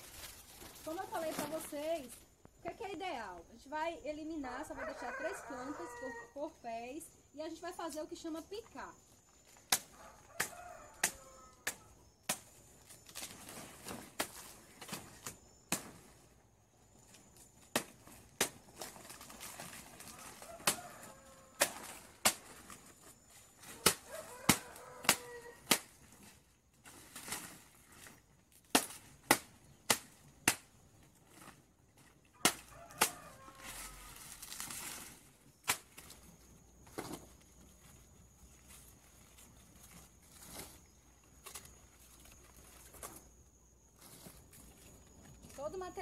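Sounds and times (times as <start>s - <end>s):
machete chopping leaves: 9.5s - 16.2s, 17.6s - 22.9s, 23.6s - 31.6s, 32.3s - 36.2s.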